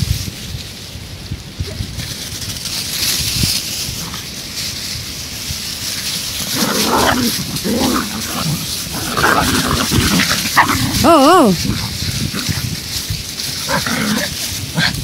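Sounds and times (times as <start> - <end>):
dry leaves rustling: 0.0 - 15.0
dogs growling and yapping: 6.3 - 15.0.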